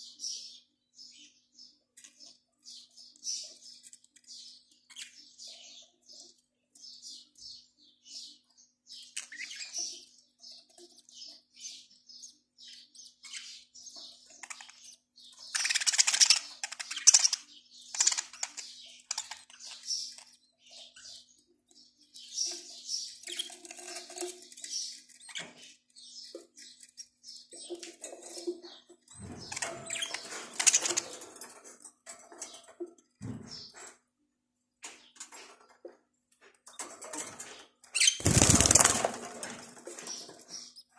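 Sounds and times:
budgerigars chirping: 0:14.2 - 0:21.2, 0:38.0 - 0:39.1.

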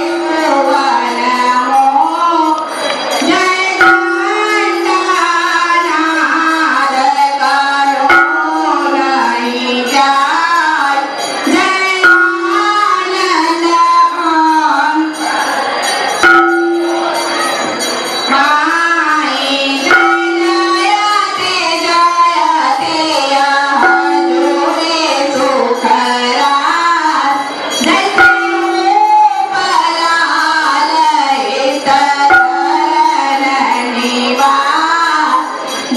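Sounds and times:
bells ringing: 0:00.0 - 0:35.9
voices singing devotional song: 0:00.0 - 0:35.9
sharp metal strikes: 0:03.8 - 0:04.9, 0:08.1 - 0:09.2, 0:12.0 - 0:13.0, 0:16.2 - 0:18.4, 0:19.8 - 0:21.6, 0:32.2 - 0:33.8.

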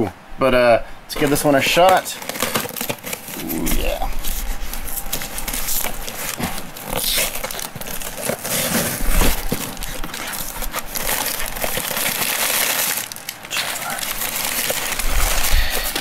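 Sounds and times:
newspaper rustling and crackling: 0:01.1 - 0:16.0.

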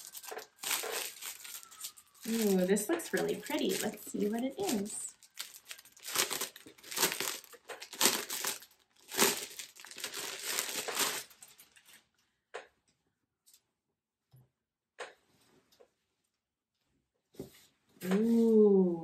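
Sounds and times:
plastic bag crinkling: 0:00.0 - 0:12.1.

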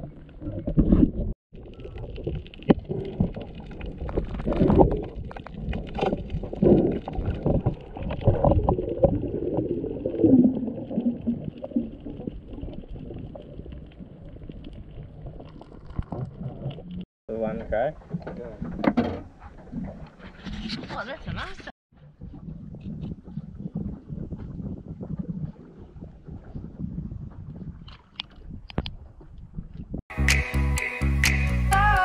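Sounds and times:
underwater gurgling: 0:00.0 - 0:17.0, 0:22.0 - 0:29.9
underwater bumps: 0:00.0 - 0:30.0
water movement: 0:00.0 - 0:30.0.

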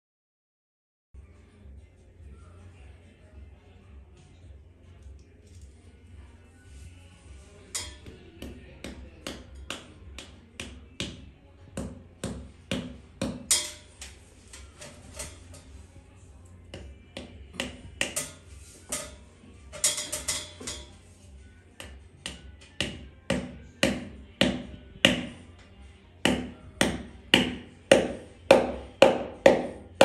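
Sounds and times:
hammer striking ceiling: 0:17.2 - 0:19.2, 0:21.8 - 0:25.3, 0:26.3 - 0:30.0.

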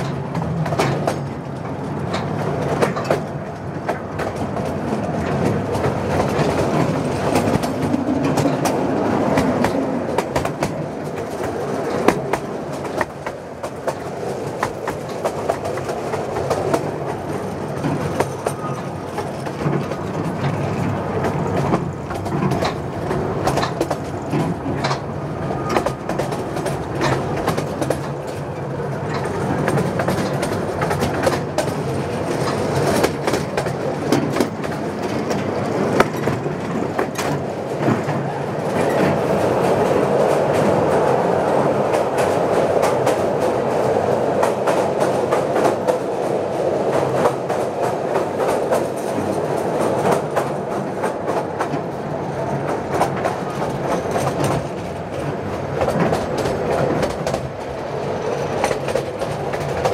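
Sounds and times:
train cars rolling on track: 0:00.0 - 0:59.9
wheels clicking over rails: 0:00.0 - 0:59.9.

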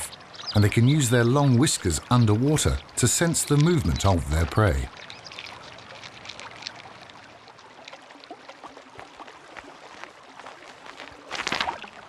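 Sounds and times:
mountain stream running: 0:00.0 - 0:12.0
wet crunches: 0:04.8 - 0:12.0.

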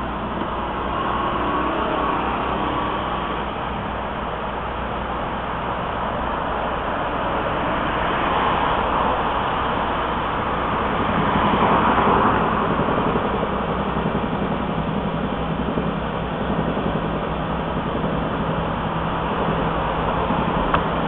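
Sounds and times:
cars passing: 0:00.0 - 0:13.2
low engine hum: 0:00.0 - 0:21.0.

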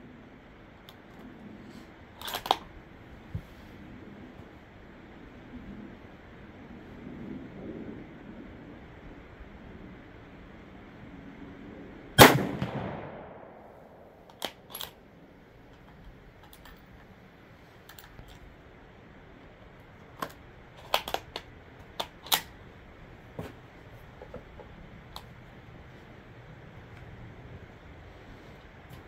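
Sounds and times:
rifle handling clicks: 0:02.2 - 0:02.7, 0:14.2 - 0:15.0, 0:15.7 - 0:17.1, 0:17.9 - 0:18.5, 0:20.0 - 0:22.5
rifle shot: 0:12.2 - 0:14.7.

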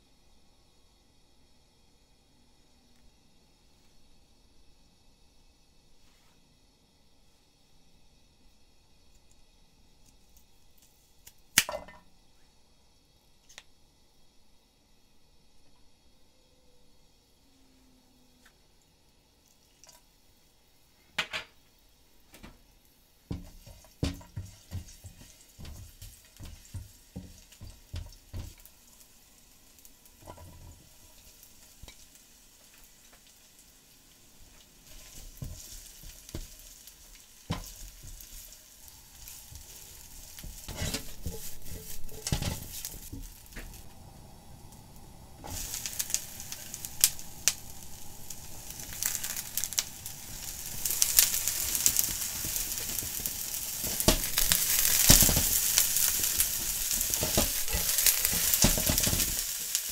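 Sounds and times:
bright loud sizzle: 0:00.0 - 0:59.9
food sizzling in oil: 0:21.5 - 0:59.9
spatula knocking and scraping pan: 0:23.3 - 0:28.7, 0:30.2 - 0:31.0, 0:34.8 - 0:36.6, 0:37.5 - 0:38.5, 0:39.2 - 0:43.3, 0:50.7 - 0:59.8.

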